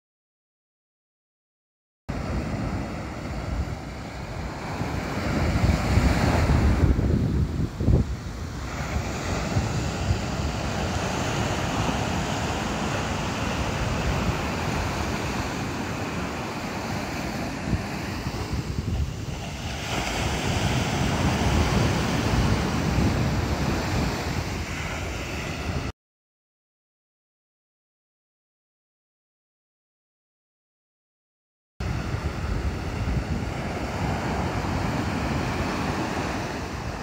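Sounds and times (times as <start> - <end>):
ocean surf breaking: 2.1 - 25.9, 31.8 - 37.0
wind on microphone: 2.1 - 25.9, 31.8 - 37.0.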